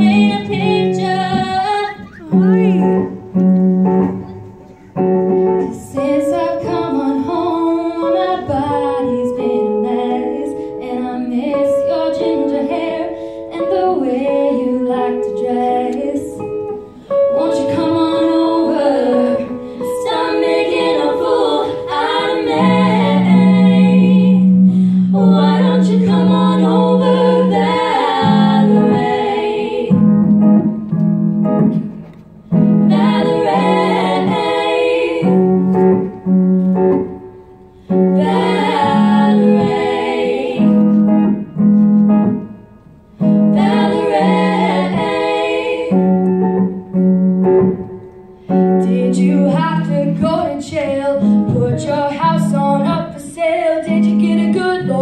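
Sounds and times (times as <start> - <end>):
women singing together: 0.0 - 2.8, 5.6 - 30.3, 32.8 - 36.3, 37.9 - 41.4, 43.2 - 46.8, 48.8 - 55.0.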